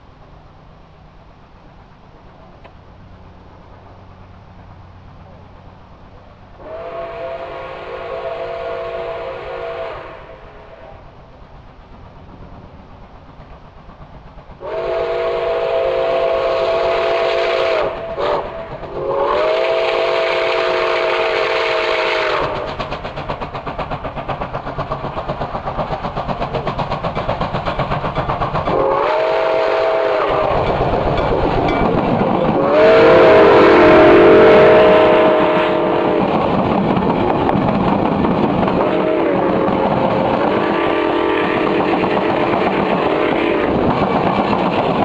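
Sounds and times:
locomotive exhaust beats: 0.0 - 45.0
steam locomotive chime whistle: 6.6 - 11.2, 14.6 - 22.8, 28.7 - 36.5, 38.8 - 44.0.

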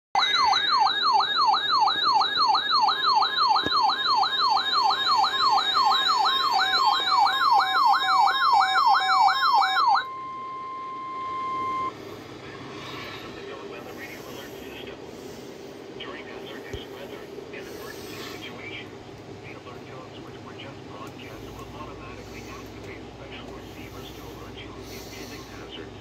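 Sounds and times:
warbling electronic siren: 0.2 - 12.0.

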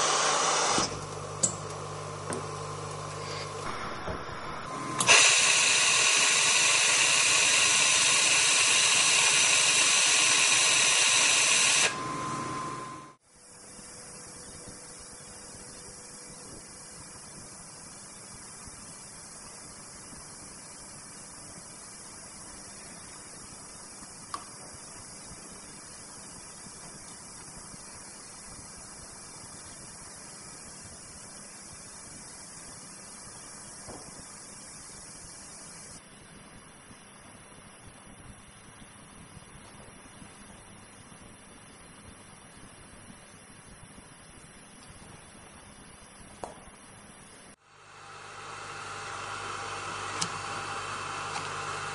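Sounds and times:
steady hiss: 0.0 - 51.9
hissing gas flow from nozzle: 3.1 - 12.2.

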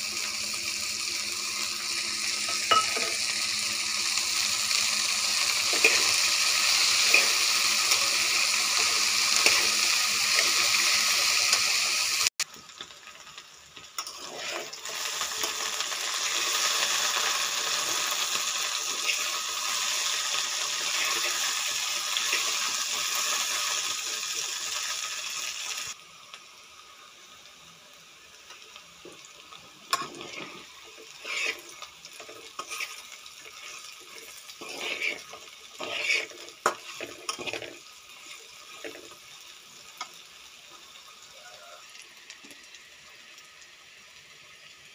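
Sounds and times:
okra sizzling in oil: 0.0 - 44.9
spatula scraping pan: 5.6 - 11.6, 14.0 - 14.8, 29.9 - 39.2.

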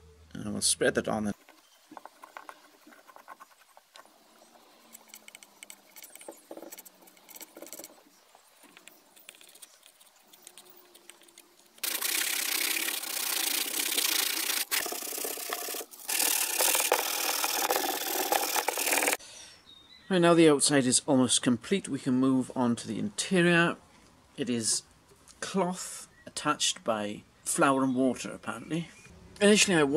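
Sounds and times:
blade scraping wood filler: 11.8 - 19.2
hand sanding with sandpaper: 11.8 - 19.2.

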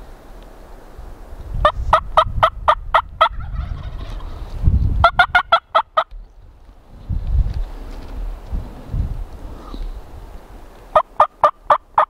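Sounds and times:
low rumble of wind: 0.0 - 12.0
turkey yelping: 1.9 - 4.4, 5.0 - 6.1, 11.0 - 12.0.

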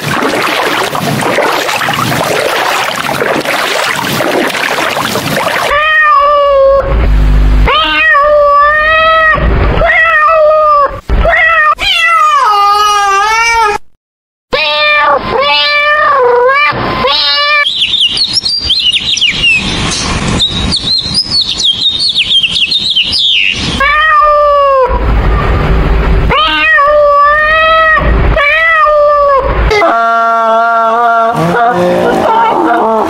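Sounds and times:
cats meowing: 5.7 - 6.8, 7.7 - 13.8, 14.6 - 17.6, 23.8 - 25.0, 26.3 - 29.5
rapid high bird chirps: 17.6 - 23.8.

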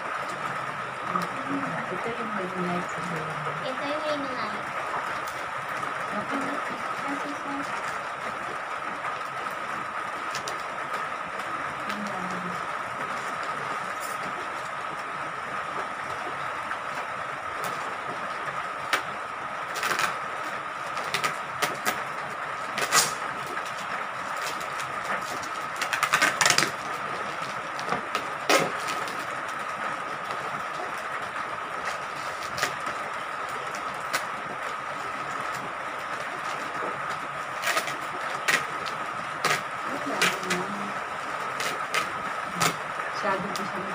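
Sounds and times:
plastic packaging crinkling: 17.6 - 43.7.

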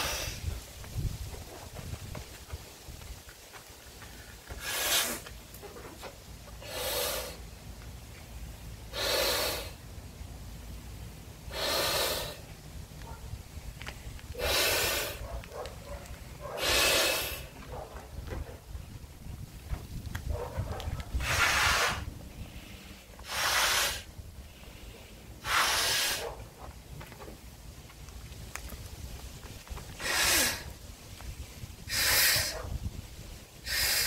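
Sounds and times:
man breathing hard: 0.0 - 0.5, 6.6 - 7.4, 8.9 - 9.8, 11.4 - 12.5, 14.3 - 15.2, 16.6 - 17.6, 21.1 - 26.3, 30.0 - 30.8, 31.5 - 32.6, 33.6 - 34.0
breath blowing into a balloon: 0.0 - 0.6, 4.5 - 5.3, 6.6 - 7.4, 8.9 - 9.8, 11.5 - 12.5, 14.3 - 15.2, 16.6 - 17.6, 21.1 - 26.3, 30.0 - 32.7, 33.6 - 34.0.

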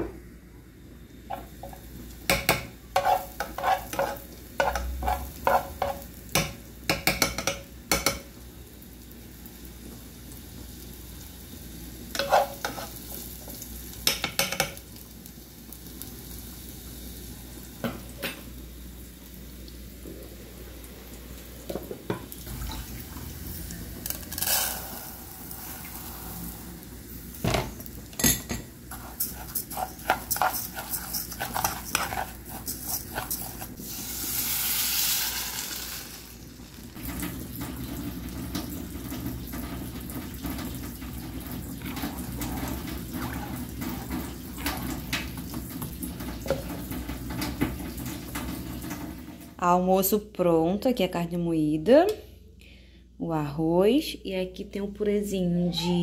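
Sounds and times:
garlic sizzling in oil: 1.0 - 49.5
rice grains stirred: 2.9 - 6.1, 28.8 - 36.4
metal spoon scraping pot: 3.0 - 6.0, 12.2 - 13.0, 28.2 - 33.8.

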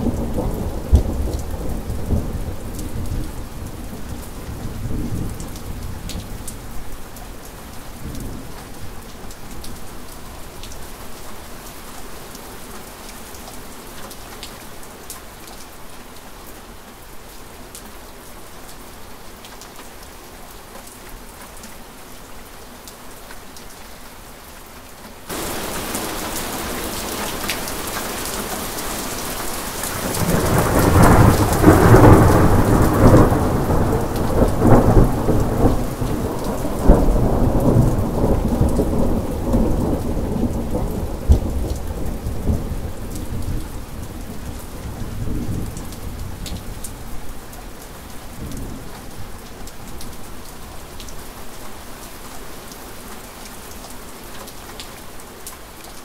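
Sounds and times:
steady rain: 0.0 - 56.0
thunder rolling: 25.3 - 28.0, 29.9 - 42.6.

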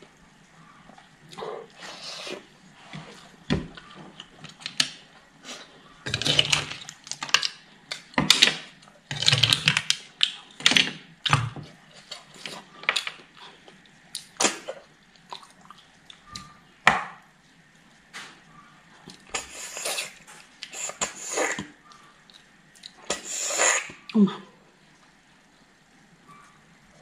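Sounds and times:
wet chewing and slurping: 19.0 - 24.1.

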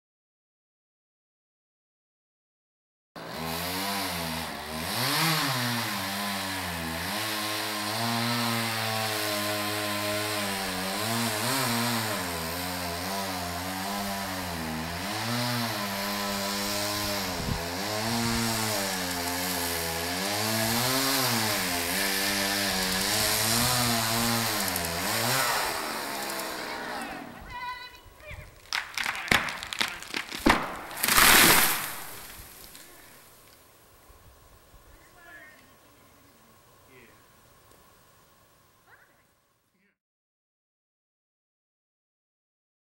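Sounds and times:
chainsaw cutting tree trunk: 3.2 - 27.4, 28.6 - 33.3.

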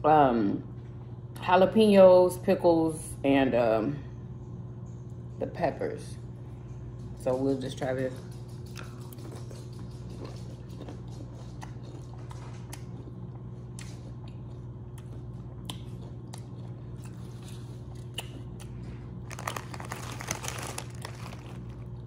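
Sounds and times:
steady low hum: 0.0 - 22.0
crunchy chewing: 8.3 - 22.0
snack bag crinkling: 17.0 - 22.0.

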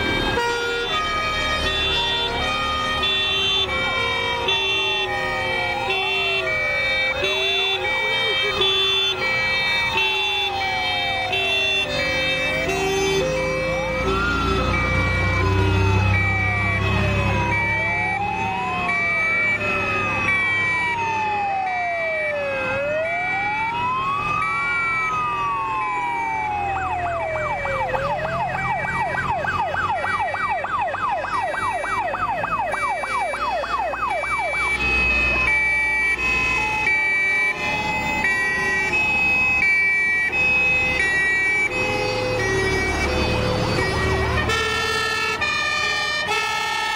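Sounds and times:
fire engine sirens wailing: 0.0 - 46.9
truck engines rumbling: 0.0 - 46.9
two-tone horns: 41.0 - 46.9.

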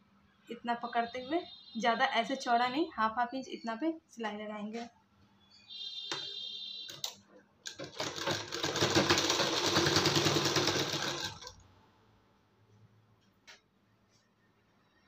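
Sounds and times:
sewing machine stitching: 7.7 - 11.6.

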